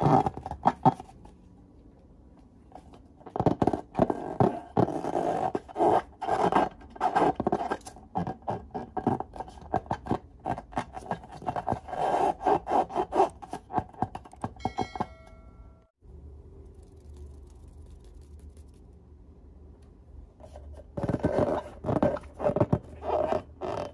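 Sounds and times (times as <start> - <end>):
short ringing chime: 14.6 - 16.0
fingers rubbing balloon squeaking: 21.1 - 23.9.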